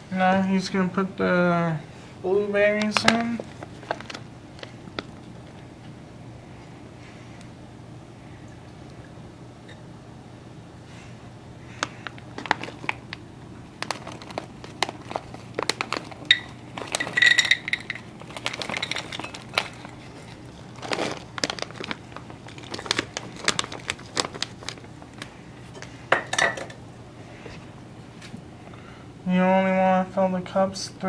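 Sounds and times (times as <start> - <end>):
kitchenware clicks and clinks: 16.3 - 19.8, 26.1 - 26.8.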